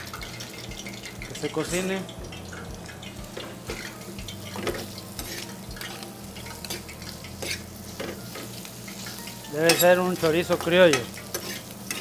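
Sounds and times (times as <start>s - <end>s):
sausage sizzling in oil: 0.0s - 12.0s
metal spoon scraping a pan: 3.3s - 12.0s.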